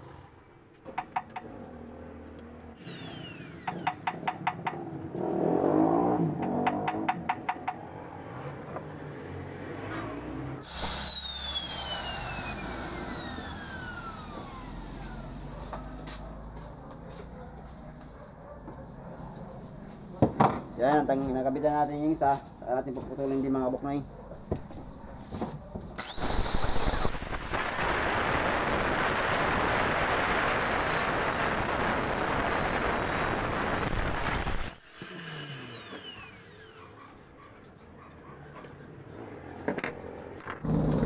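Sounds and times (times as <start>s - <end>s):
angle grinder spinning down: 2.4s - 7.7s, 10.6s - 16.1s, 26.0s - 36.9s.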